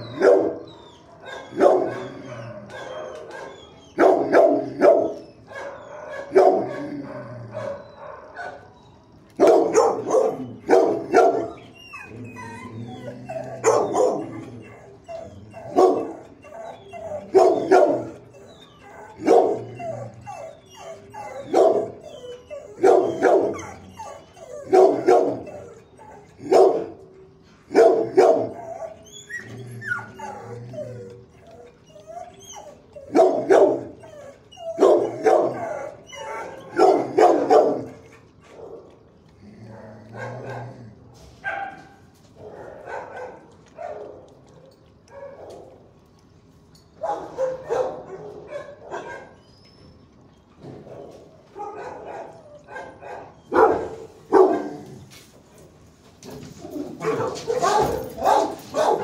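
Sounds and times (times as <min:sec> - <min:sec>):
dog barking: 0:00.0 - 0:00.6, 0:01.2 - 0:08.7, 0:09.4 - 0:11.6, 0:13.6 - 0:14.5, 0:15.6 - 0:16.2, 0:17.3 - 0:18.2, 0:19.2 - 0:19.7, 0:21.4 - 0:22.0, 0:22.8 - 0:23.8, 0:24.7 - 0:25.5, 0:26.4 - 0:26.9, 0:27.7 - 0:28.6, 0:33.1 - 0:33.9, 0:34.8 - 0:35.9, 0:36.7 - 0:38.0, 0:41.4 - 0:44.3, 0:45.1 - 0:45.7, 0:47.0 - 0:49.4, 0:51.6 - 0:54.8, 0:57.0 - 0:59.0.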